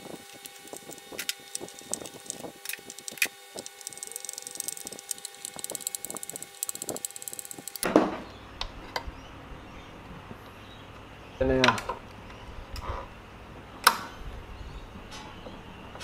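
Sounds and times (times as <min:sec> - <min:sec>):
screwdriver clicking in screws: 0:00.1 - 0:07.8.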